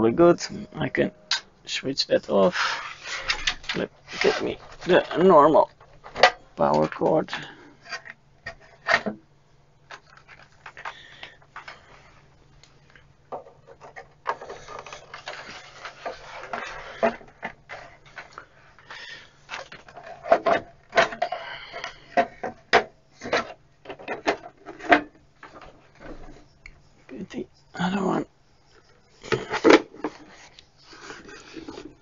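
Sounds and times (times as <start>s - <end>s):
sheet metal scraping: 2.2s - 5.2s.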